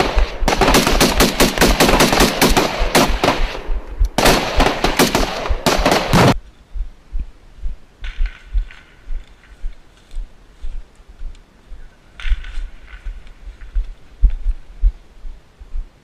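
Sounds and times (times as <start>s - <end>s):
automatic gunfire bursts: 0.0s - 3.6s, 4.2s - 6.4s.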